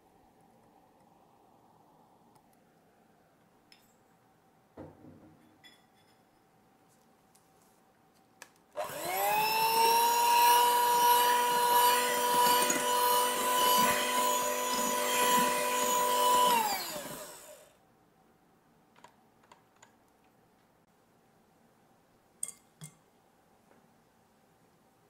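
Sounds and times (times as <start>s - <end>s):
electric hand mixer whine: 8.8s - 17.7s.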